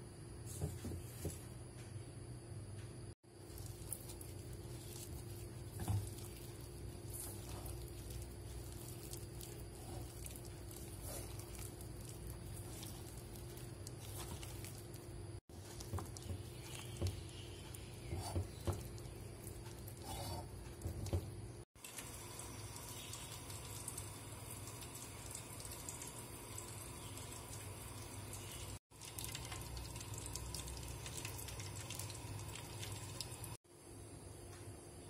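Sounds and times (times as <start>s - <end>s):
hand squishing wet batter: 3.4s - 21.6s.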